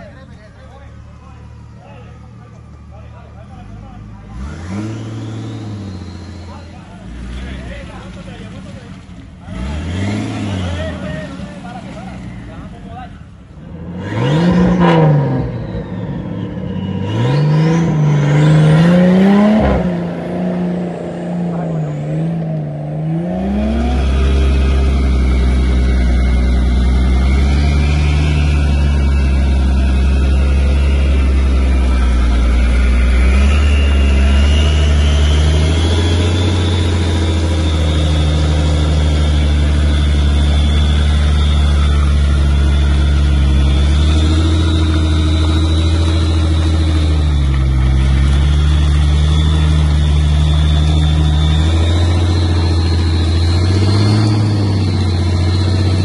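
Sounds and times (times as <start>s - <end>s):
vehicle engine running under load: 0.0s - 56.0s
high whine: 13.4s - 56.0s.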